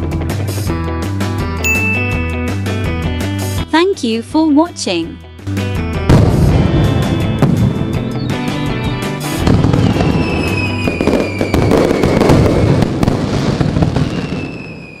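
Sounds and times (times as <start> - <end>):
background music: 0.0 - 11.4
falling firework whistle: 9.3 - 15.0
firework pops and crackles: 9.3 - 15.0.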